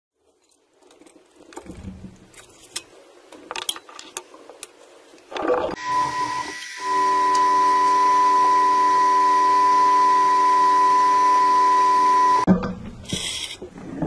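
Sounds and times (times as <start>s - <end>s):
microwave humming and whining: 5.8s - 12.5s.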